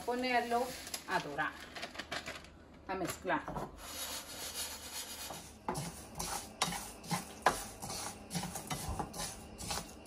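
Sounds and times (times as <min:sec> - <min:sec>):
utensil scraping rice in a pan: 0:03.8 - 0:10.0.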